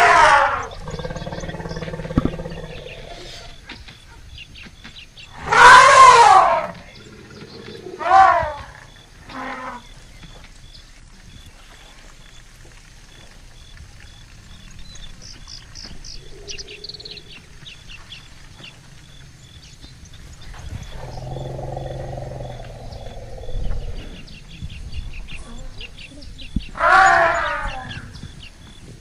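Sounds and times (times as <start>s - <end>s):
low drawn-out animal call: 0.0s - 3.6s, 5.3s - 10.0s, 20.7s - 24.4s, 26.7s - 28.2s
birds chirping: 0.0s - 29.0s.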